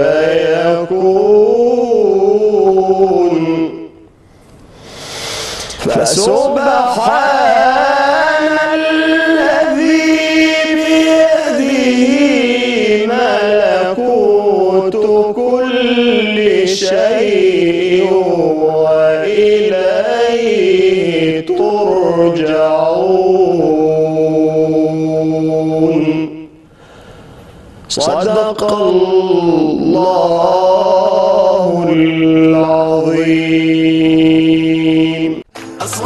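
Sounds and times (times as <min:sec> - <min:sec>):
man chanting solo: 0:05.8 - 0:19.6.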